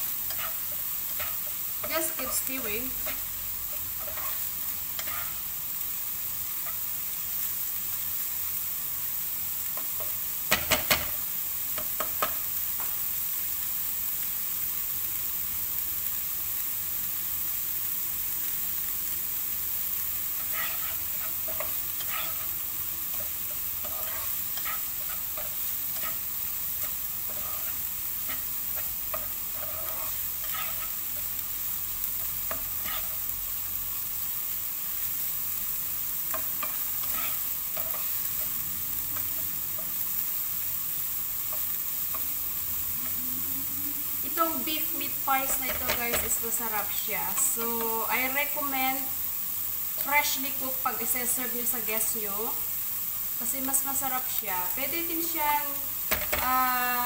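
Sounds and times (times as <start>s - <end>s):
spoon scraping a pan: 0.0s - 5.5s, 6.6s - 6.9s, 20.2s - 31.4s, 32.1s - 33.3s, 36.3s - 38.6s, 45.4s - 46.5s
food sizzling in a frying pan: 0.0s - 57.0s.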